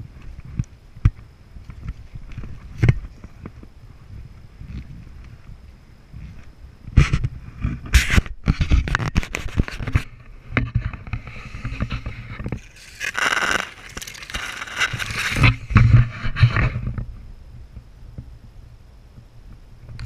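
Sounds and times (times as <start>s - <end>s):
camera handling noise: 11.1s - 16.4s.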